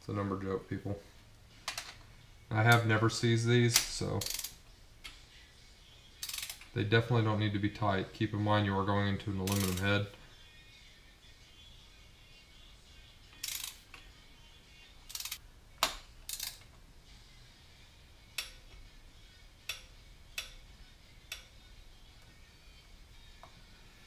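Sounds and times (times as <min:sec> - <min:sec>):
torque wrench ratcheting clicks: 0:03.8 - 0:04.6, 0:06.2 - 0:06.7, 0:09.5 - 0:09.9, 0:13.3 - 0:14.0, 0:15.1 - 0:15.4, 0:16.2 - 0:16.7.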